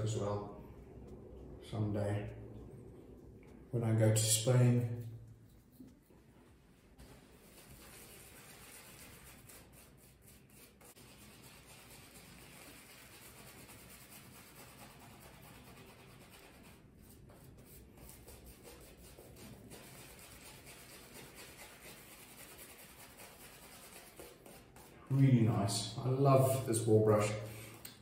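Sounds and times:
shaving brush scrubbing: 0:07.0 - 0:25.2.

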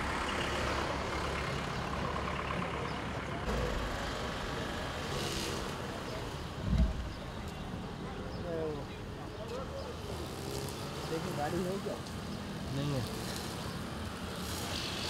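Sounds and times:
road traffic: 0:00.0 - 0:15.0
dull low thump: 0:06.6 - 0:07.2.

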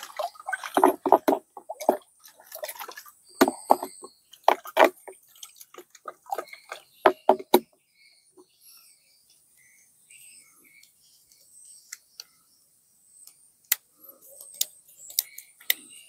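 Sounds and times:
water sloshing in a tank: 0:00.0 - 0:08.5
sharp knocks: 0:00.7 - 0:02.0, 0:03.4 - 0:05.2, 0:07.0 - 0:07.7.

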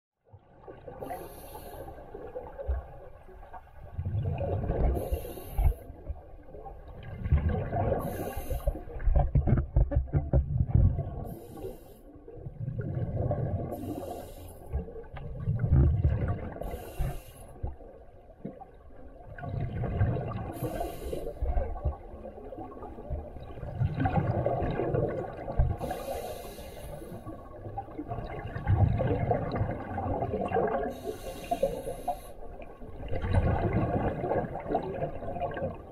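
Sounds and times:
regulator inhale hiss: 0:01.0 - 0:02.1, 0:05.0 - 0:05.9, 0:08.0 - 0:09.0, 0:11.3 - 0:12.2, 0:13.7 - 0:14.8, 0:16.6 - 0:17.7, 0:20.5 - 0:21.5, 0:25.8 - 0:27.4, 0:30.9 - 0:32.6
exhaled bubbles rumbling: 0:02.1 - 0:11.6, 0:12.2 - 0:17.0, 0:17.6 - 0:26.4, 0:27.1 - 0:35.9.

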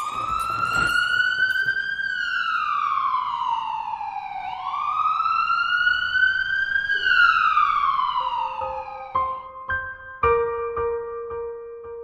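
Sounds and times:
emergency siren wailing: 0:00.0 - 0:09.6
piano notes: 0:09.1 - 0:12.0.

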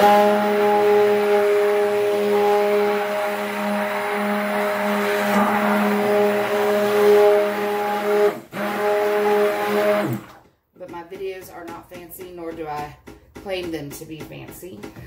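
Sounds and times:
stick blender motor hum: 0:00.0 - 0:11.1.

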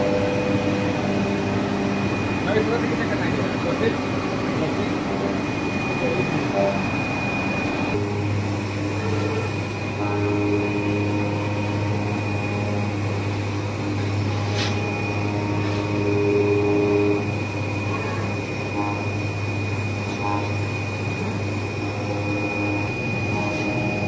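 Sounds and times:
machine low hum: 0:00.0 - 0:24.0
motor whines: 0:00.0 - 0:24.0
steady high tone: 0:00.0 - 0:24.0.

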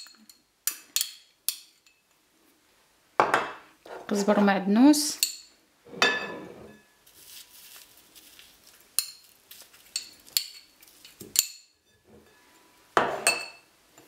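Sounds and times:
spoon clinking on dishes: 0:00.0 - 0:02.0, 0:05.2 - 0:06.9, 0:09.0 - 0:12.4, 0:13.0 - 0:14.0.

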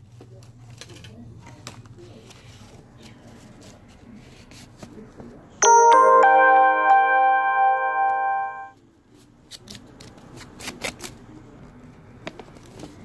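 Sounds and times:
electronic two-note chime: 0:05.6 - 0:08.7.

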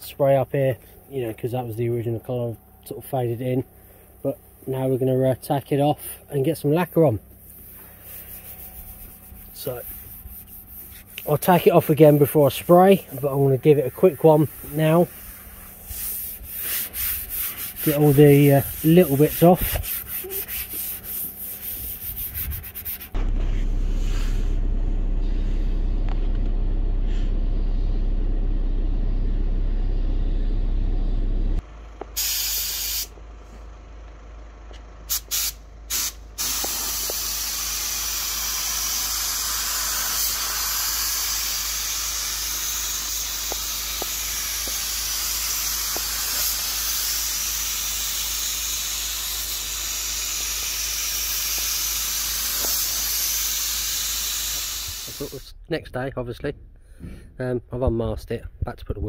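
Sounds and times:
tack rag rubbing panel: 0:08.1 - 0:12.4, 0:15.8 - 0:23.5
spray gun hissing: 0:14.3 - 0:23.2, 0:32.2 - 0:33.1, 0:35.1 - 0:55.4
loud low drone: 0:23.2 - 0:31.8.

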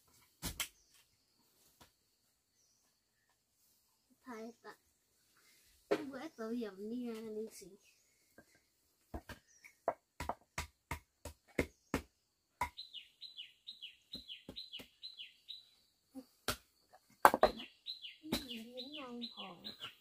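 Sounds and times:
bird chirping: 0:06.2 - 0:10.0, 0:11.4 - 0:20.0
stone slabs knocking: 0:17.2 - 0:17.6.

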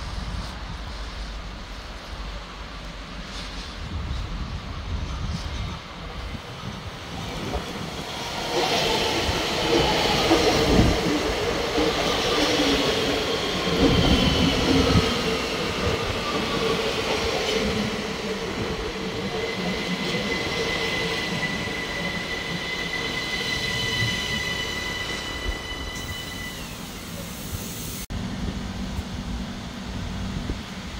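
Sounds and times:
electric train passing: 0:00.0 - 0:30.9
high wheel squeal: 0:19.4 - 0:27.5.

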